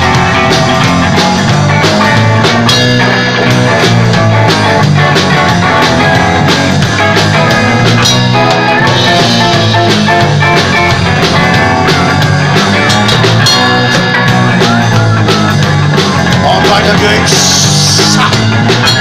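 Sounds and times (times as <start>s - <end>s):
bass guitar: 0.0s - 19.0s
drum kit beat: 0.0s - 19.0s
electric guitars: 0.0s - 19.0s.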